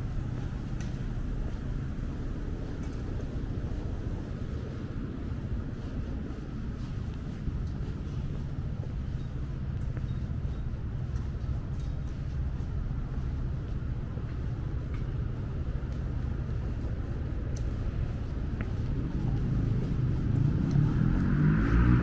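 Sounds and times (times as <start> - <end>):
traffic rumble: 0.0 - 22.0
vehicle passing close: 19.4 - 22.0.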